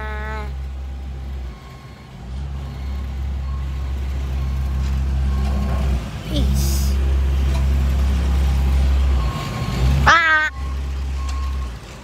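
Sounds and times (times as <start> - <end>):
short voice-like call: 0.0 - 0.6, 10.0 - 10.6
work vehicle engine droning: 0.0 - 12.0.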